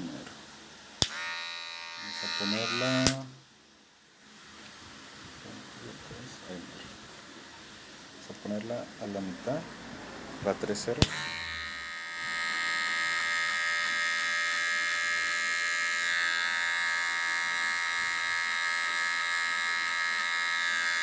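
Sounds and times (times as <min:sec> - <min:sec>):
electric hair clipper buzzing: 0:01.0 - 0:03.4, 0:11.0 - 0:21.0.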